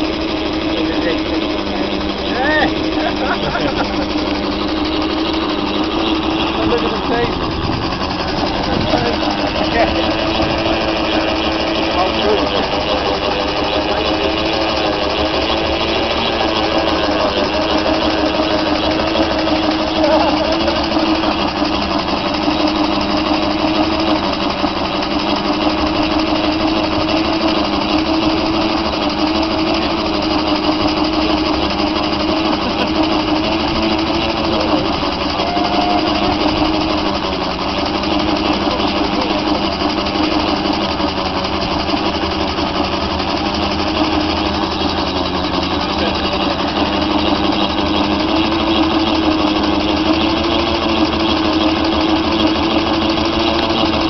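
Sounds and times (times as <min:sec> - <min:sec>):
steam engine running: 0:00.0 - 0:54.0.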